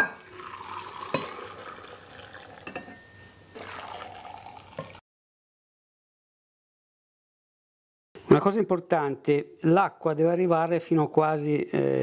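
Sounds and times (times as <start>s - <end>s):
brine pouring into glass jar: 0.2s - 2.7s, 3.6s - 5.0s
light glass clinks: 1.1s - 1.6s, 2.6s - 3.4s.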